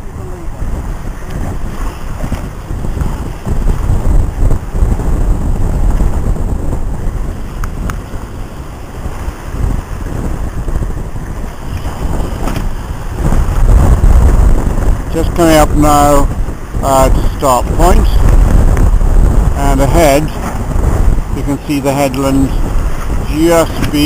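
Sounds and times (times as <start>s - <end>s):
sea water rushing along hull: 0.0s - 24.0s
wind buffeting microphone: 0.0s - 24.0s.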